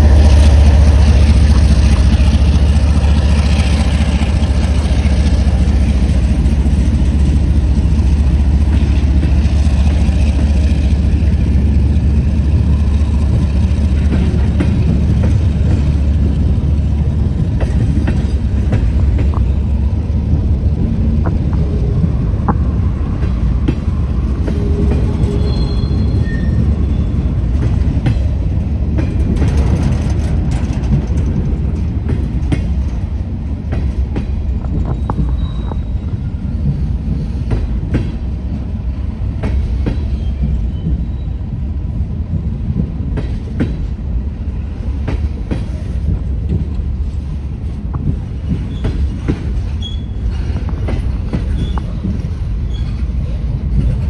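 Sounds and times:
wheels clicking over rail joints: 0.0s - 38.7s, 44.9s - 54.0s
railroad cars rumbling: 0.0s - 54.0s
high wheel squeals: 25.1s - 27.3s, 34.8s - 36.6s, 48.6s - 50.6s.

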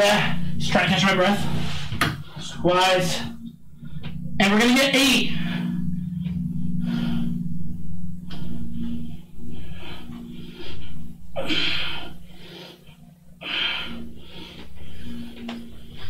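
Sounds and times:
steady low hum: 0.0s - 16.0s
man breathing hard: 5.3s - 16.0s.

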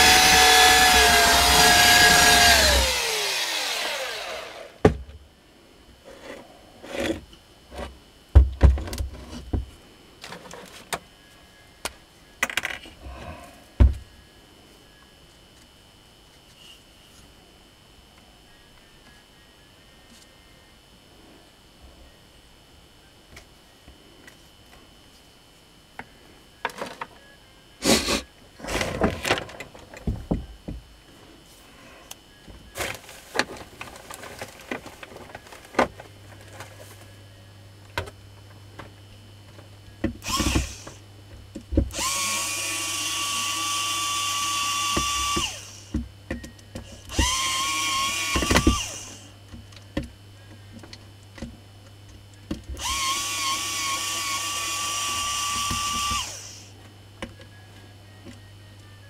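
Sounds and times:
electric drill whining: 0.0s - 4.9s, 40.2s - 41.0s, 41.9s - 46.0s, 46.8s - 49.3s, 52.8s - 56.7s.

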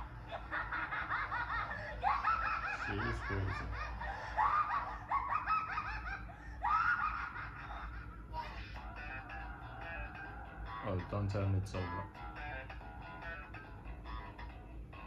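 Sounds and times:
high-pitched cackling laughter: 0.0s - 10.8s.

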